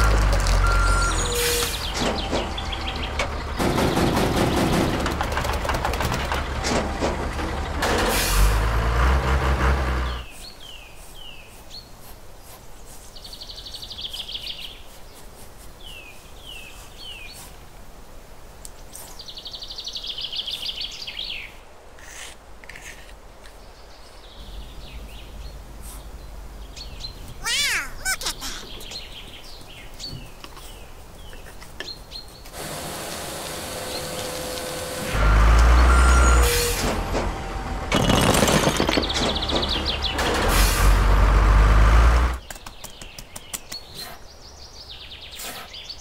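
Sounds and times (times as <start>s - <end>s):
birds chirping and trilling: 0.0s - 6.5s, 9.9s - 17.6s, 18.9s - 32.6s, 37.2s - 40.5s, 42.4s - 46.0s.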